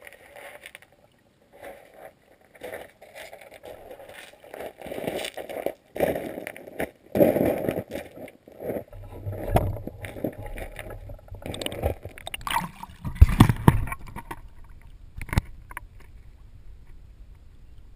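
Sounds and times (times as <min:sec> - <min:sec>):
creek water sloshing and gurgling: 0:08.8 - 0:16.4
sharp knocks and thumps: 0:08.9 - 0:14.6.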